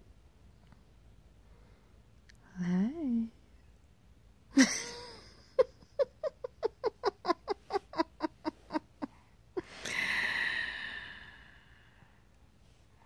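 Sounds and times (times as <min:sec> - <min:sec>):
person laughing: 0:04.6 - 0:09.9
long breathy exhale: 0:09.6 - 0:12.3.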